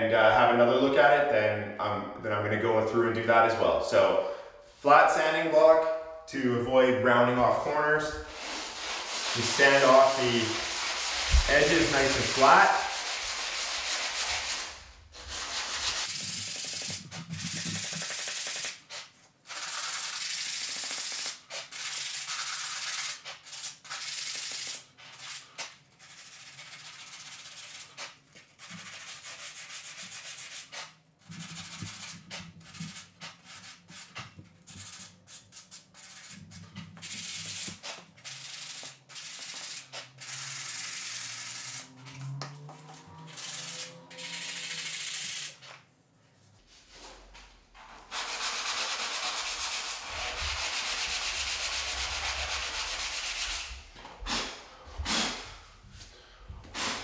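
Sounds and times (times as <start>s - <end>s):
sanding block scratching wood: 8.3s - 18.8s, 19.5s - 28.0s, 28.6s - 36.4s, 37.0s - 41.9s, 43.3s - 45.6s, 48.1s - 53.7s.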